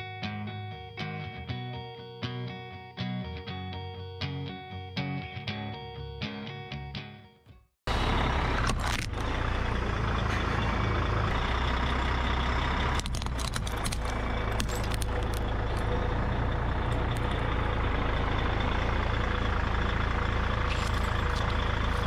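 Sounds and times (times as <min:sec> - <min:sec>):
truck engine running: 0:07.9 - 0:22.0
shards ticking: 0:12.9 - 0:16.1.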